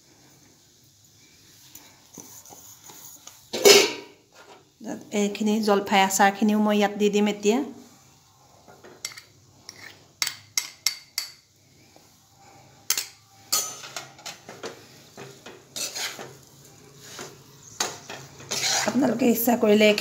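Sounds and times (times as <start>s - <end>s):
spoon scraping metal pan: 2.2s - 4.6s, 9.0s - 11.4s, 12.9s - 20.0s.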